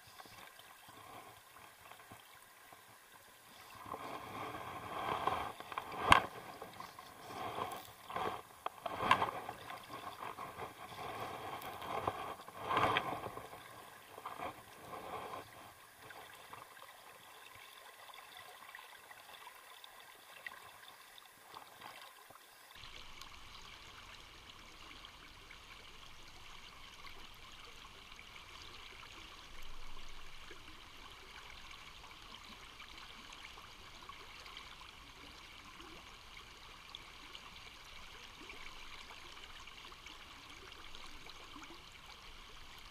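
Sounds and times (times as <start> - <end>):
river current running: 0.0 - 34.3.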